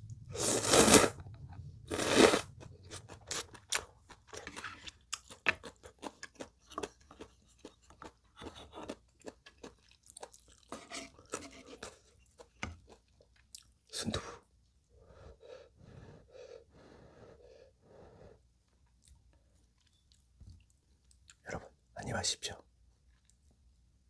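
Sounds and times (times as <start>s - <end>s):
wet chewing and smacking: 2.5s - 13.8s, 18.7s - 21.4s.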